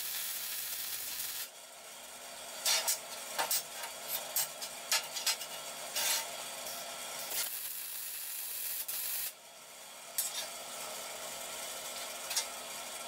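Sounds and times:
welding arc crackling: 0.0s - 1.5s, 7.2s - 9.4s.

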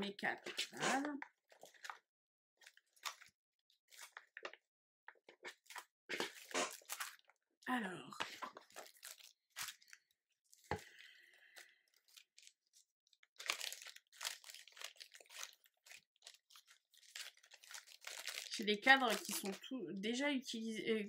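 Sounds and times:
plastic packet crinkling: 0.4s - 2.0s, 2.6s - 3.3s, 3.9s - 4.6s, 5.4s - 7.4s, 8.2s - 19.7s.

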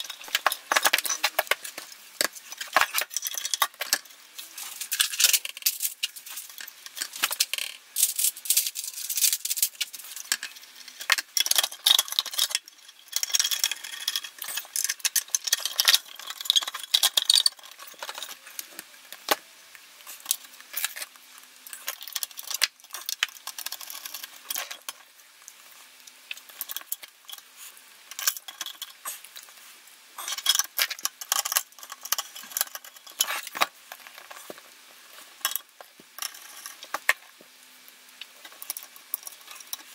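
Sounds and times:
small metal parts clicking and rattling: 0.0s - 37.4s, 38.2s - 39.9s.

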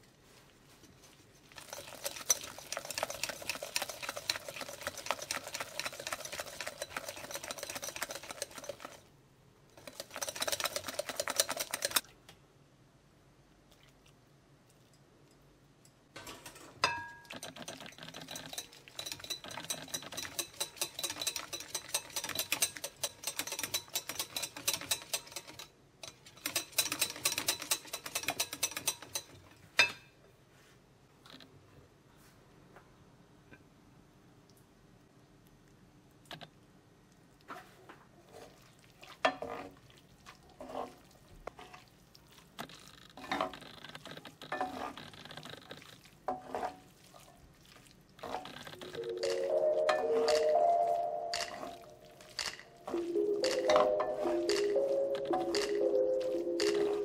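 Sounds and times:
whisk clicking against glass bowl: 1.7s - 9.0s, 9.8s - 12.0s, 17.2s - 29.3s.

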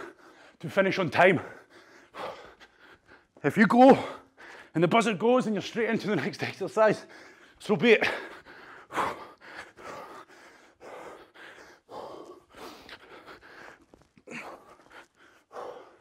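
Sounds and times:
man breathing hard: 0.0s - 0.6s, 1.3s - 4.8s, 7.0s - 16.0s.

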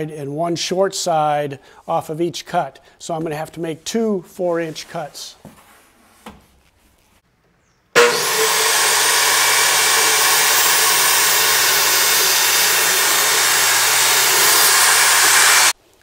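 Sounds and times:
table saw cutting board: 8.0s - 15.8s.

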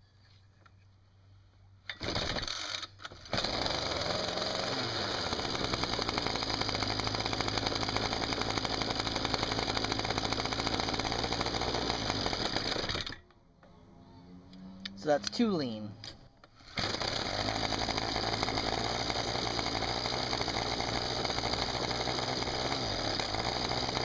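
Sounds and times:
trimmer engine running: 3.2s - 13.2s, 16.7s - 24.0s.

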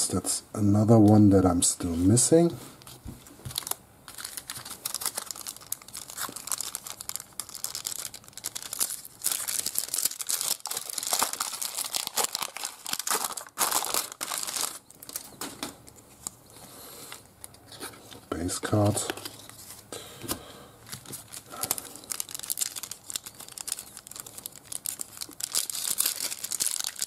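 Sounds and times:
foil wrapper crinkling and tearing: 3.5s - 16.4s, 20.9s - 27.0s.

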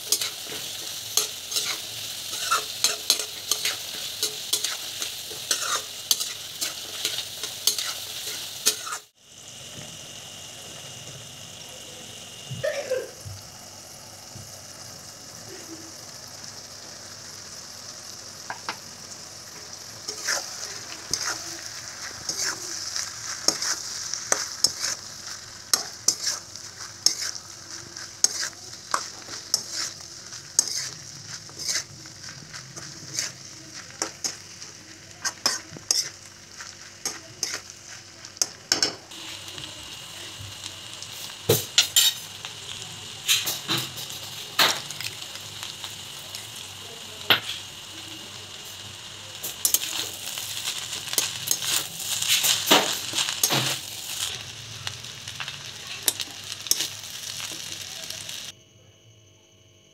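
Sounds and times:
metal spatula scraping a pan: 0.0s - 9.1s, 20.0s - 34.4s, 35.2s - 36.2s, 41.8s - 42.2s, 49.5s - 54.4s
food sizzling in a pan: 0.0s - 58.6s.

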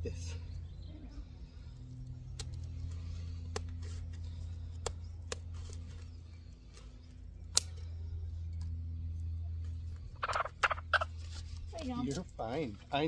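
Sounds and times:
scissors snipping feathers: 7.5s - 7.8s.

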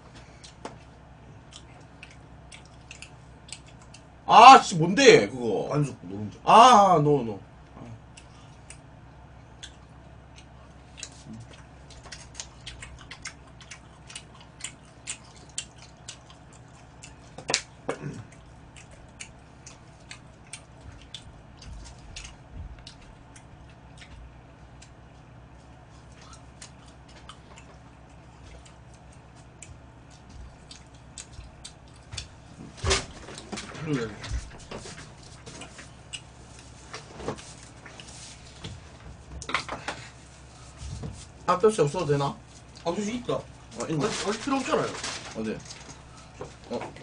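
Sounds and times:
low room hum: 0.0s - 47.0s.

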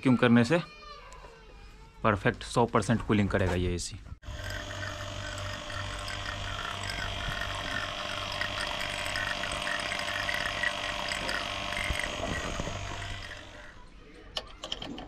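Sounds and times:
vacuum pump humming and whining: 4.2s - 13.8s.

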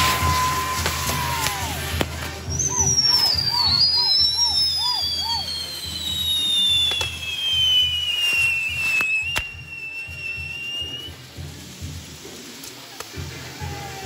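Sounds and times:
firework whistle sliding down: 0.0s - 11.9s
sharp firework crack: 0.0s - 14.0s
short chirping whistles: 2.6s - 11.1s.

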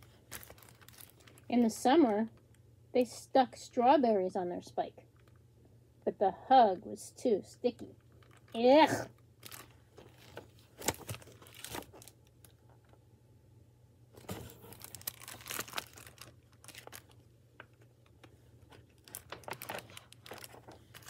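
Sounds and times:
book pages rustling and crinkling: 0.0s - 1.6s, 9.4s - 13.0s, 14.2s - 21.0s.

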